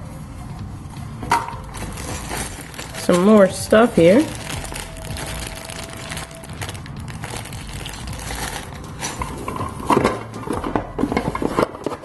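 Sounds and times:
plastic bags crinkling: 1.7s - 9.6s.

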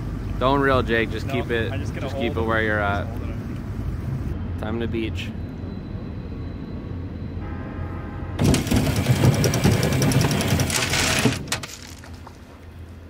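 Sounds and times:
boat motor humming: 7.5s - 11.4s.

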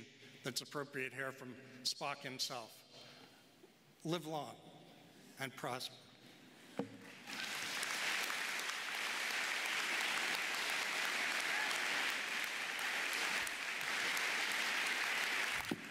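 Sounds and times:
large audience applauding: 7.0s - 15.9s.

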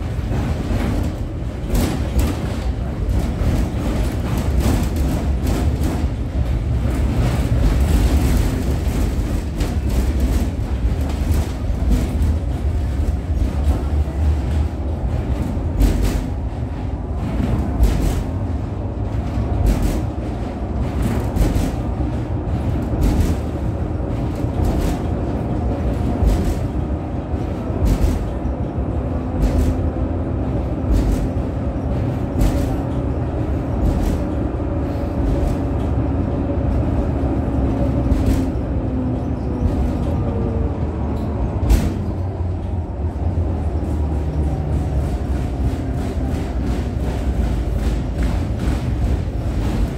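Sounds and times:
tram wheels rumbling on rail: 0.0s - 49.9s.

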